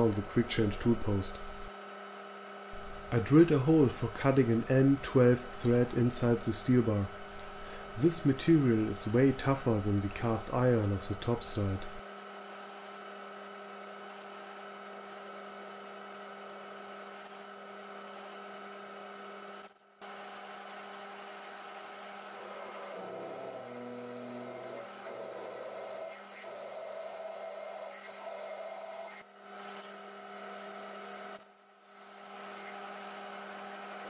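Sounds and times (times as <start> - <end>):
lathe machine hum: 2.8 - 12.0, 20.0 - 29.2
drill cutting metal: 22.2 - 29.2.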